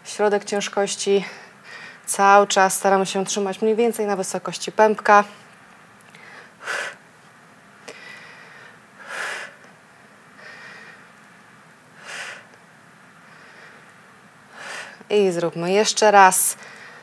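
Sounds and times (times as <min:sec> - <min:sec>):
woman breathing: 0:01.2 - 0:02.1, 0:06.1 - 0:07.0, 0:07.8 - 0:11.3, 0:11.9 - 0:15.1, 0:16.6 - 0:17.0.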